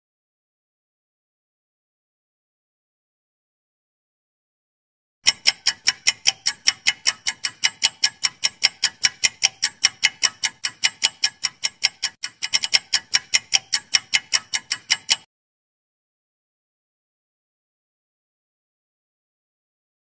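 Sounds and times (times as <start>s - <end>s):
clock ticking countdown: 5.2s - 15.3s.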